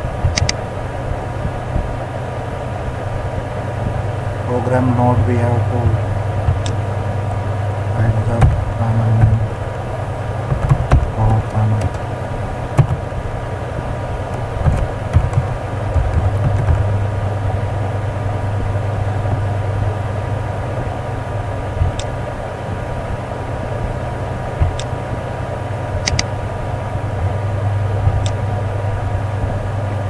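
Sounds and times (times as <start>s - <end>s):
low background hum: 0.0s - 30.0s
computer keyboard typing: 0.3s - 0.6s, 10.5s - 12.0s, 12.8s - 13.0s, 14.3s - 17.0s, 26.0s - 26.3s.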